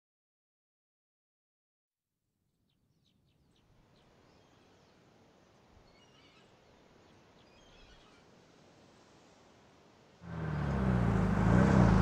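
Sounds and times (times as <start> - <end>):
low steady rumble: 10.2 - 12.0.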